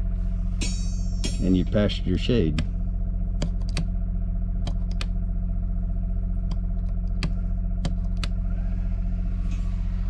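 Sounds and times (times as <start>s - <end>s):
generator humming: 0.0s - 10.0s
rocker switches clicking: 3.4s - 3.9s, 4.6s - 5.1s, 6.5s - 8.3s.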